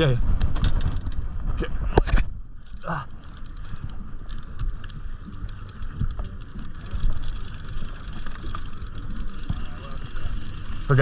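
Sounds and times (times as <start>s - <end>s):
outboard motor running: 2.5s - 11.0s
faint ticks: 2.6s - 11.0s.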